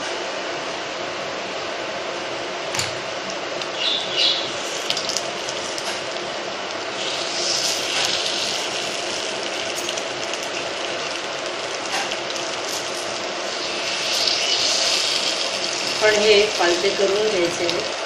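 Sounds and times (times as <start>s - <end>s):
batter sizzling in a pan: 3.6s - 18.0s.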